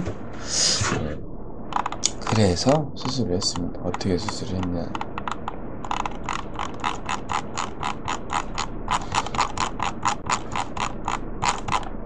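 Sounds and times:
rapid computer mouse clicking: 1.7s - 12.0s.

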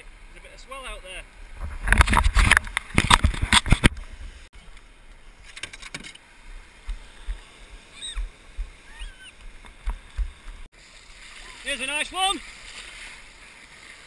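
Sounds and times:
wind rumbling on microphone: 1.5s - 4.5s
knocking and rustling on camera: 1.6s - 4.1s
water lapping around kayak: 6.2s - 14.0s.

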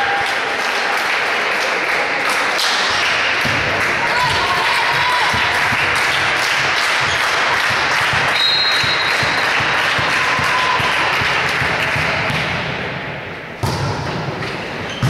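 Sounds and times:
people clapping: 0.0s - 12.5s
crowd voices: 0.0s - 15.0s
volleyball serve smack: 13.6s - 14.3s.

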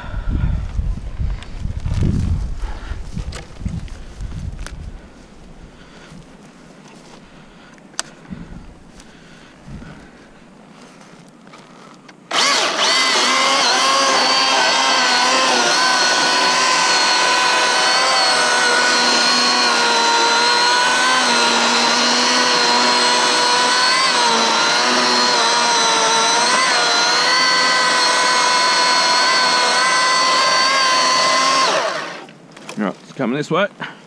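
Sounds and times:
electric chainsaw cutting wood: 12.3s - 32.3s.

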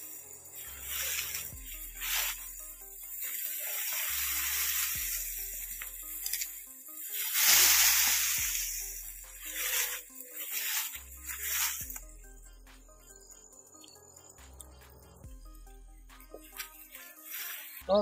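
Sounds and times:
soft background music: 0.0s - 18.0s
plants rustling: 0.3s - 12.0s, 16.3s - 18.0s.

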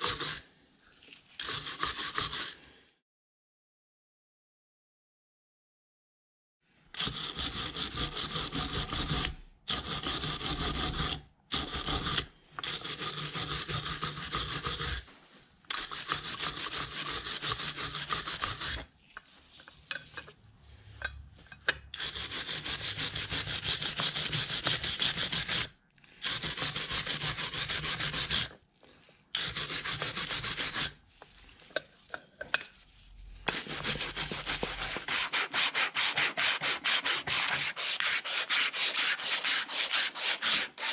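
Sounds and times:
hand sanding rusty metal: 0.0s - 0.4s, 1.4s - 2.6s, 7.0s - 15.1s, 15.7s - 18.9s, 22.0s - 28.6s, 29.4s - 31.0s, 33.4s - 40.9s.

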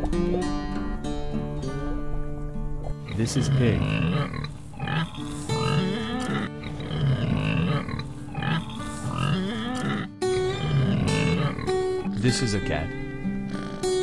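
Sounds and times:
background music: 0.0s - 14.0s
piglets grunting: 3.0s - 12.2s.

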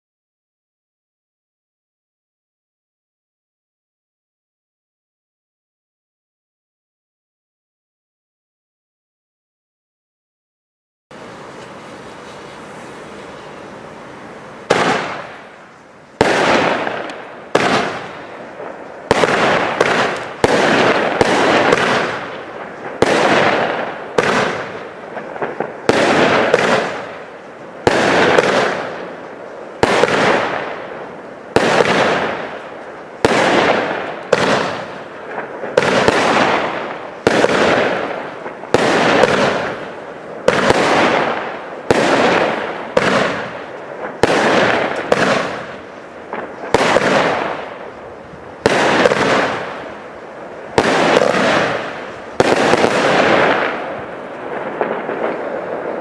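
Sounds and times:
firework bangs: 11.1s - 56.0s.

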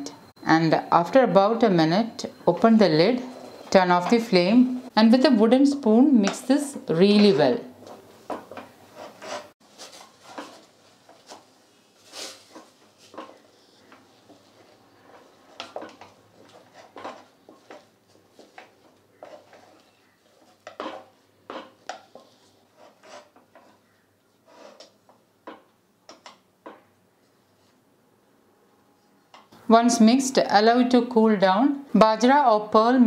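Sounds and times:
spoon scraping a steel saucepan: 19.1s - 23.8s.

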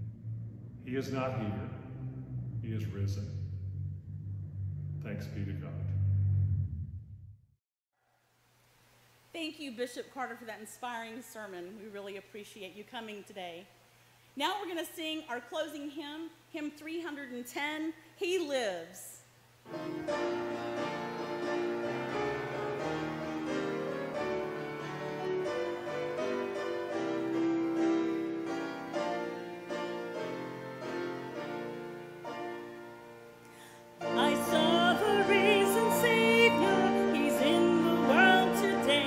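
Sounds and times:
grand piano playing: 0.0s - 6.7s, 19.7s - 39.0s
woman singing a hymn: 34.0s - 39.0s.

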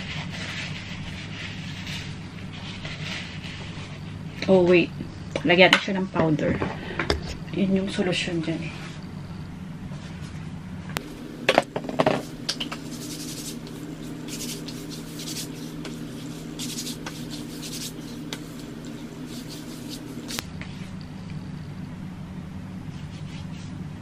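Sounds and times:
steady low hum: 0.0s - 24.0s
hands rubbing skin and hair: 11.8s - 20.9s.

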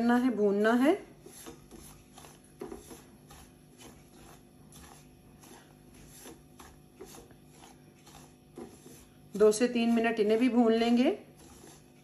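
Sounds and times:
spatula scraping pan: 0.6s - 12.0s.

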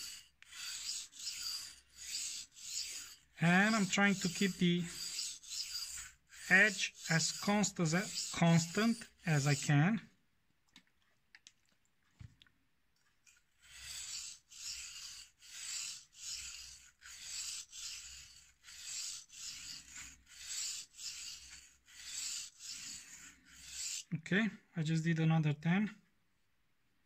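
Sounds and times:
knife scraping on whetstone: 0.0s - 9.8s, 13.6s - 24.1s.

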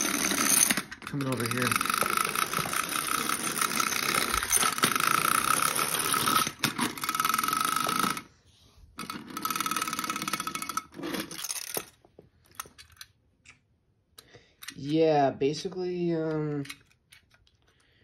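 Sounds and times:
clockwork motor whirring: 0.0s - 8.3s
toy clattering and rattling: 0.0s - 8.3s, 9.0s - 13.6s, 16.2s - 18.0s.

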